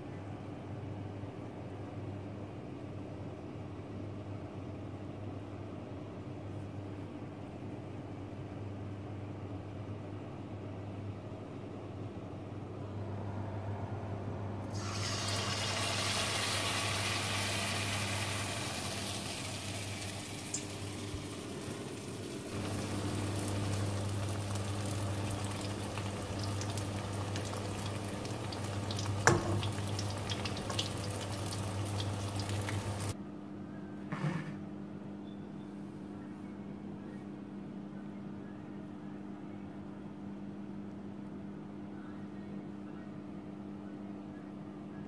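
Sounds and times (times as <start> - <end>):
low steady hum: 0.0 - 45.0
tofu deep-frying in oil: 14.7 - 33.2.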